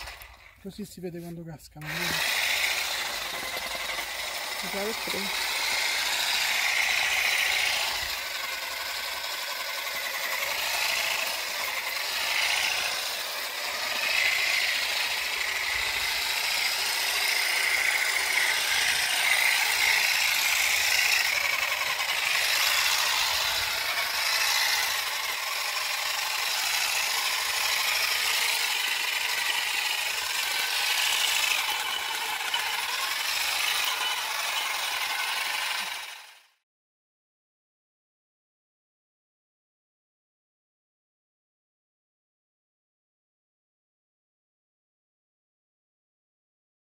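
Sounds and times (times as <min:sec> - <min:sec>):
olive harvester combs rattling: 0:00.0 - 0:36.2.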